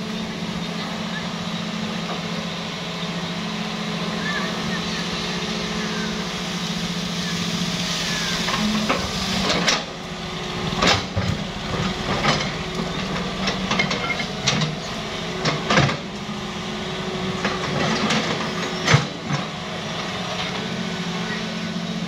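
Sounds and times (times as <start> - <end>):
excavator diesel engine running: 0.0 - 22.0
excavator bucket knocks and clanks: 10.8 - 16.2.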